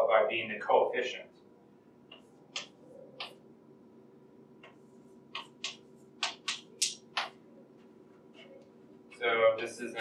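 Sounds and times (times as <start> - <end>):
faint room hum: 0.0 - 10.0
chalk tapping on blackboard: 4.6 - 7.4.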